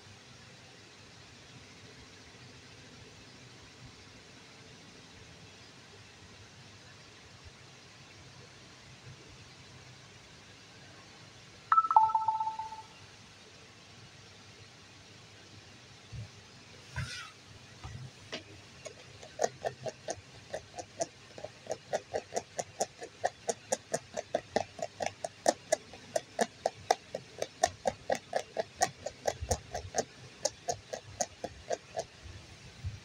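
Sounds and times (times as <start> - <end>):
spatula stirring thick batter: 17.9 - 32.2.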